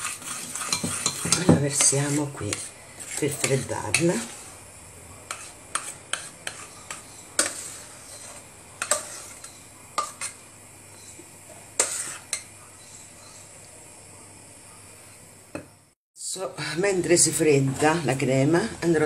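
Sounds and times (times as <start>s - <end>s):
utensil scraping metal saucepan: 0.0s - 4.6s, 5.3s - 10.5s, 11.8s - 13.5s.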